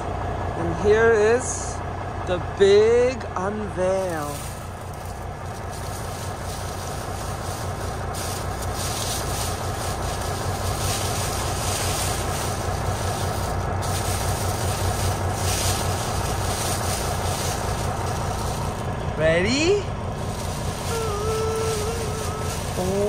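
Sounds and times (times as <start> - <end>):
truck engine idling: 0.0 - 23.0
plastic cover crinkling: 4.1 - 19.0, 20.1 - 23.0.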